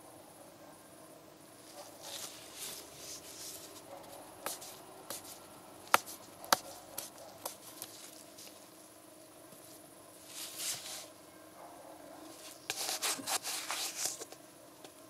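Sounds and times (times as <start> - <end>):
glove rustling on plastic: 1.7 - 8.8, 9.6 - 11.1, 12.4 - 14.4.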